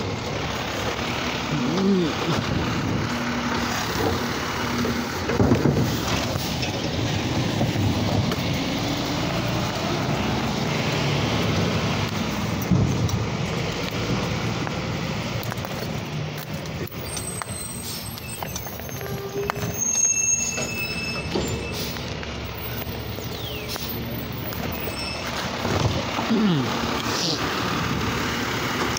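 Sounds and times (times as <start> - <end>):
garbage truck diesel engine rumble: 0.0 - 28.9
high-pitched squeals: 16.9 - 25.8.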